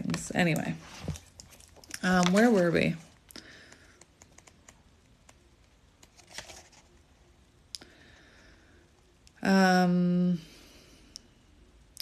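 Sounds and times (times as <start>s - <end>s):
cards clicking and rustling: 1.1s - 2.9s, 3.6s - 6.9s.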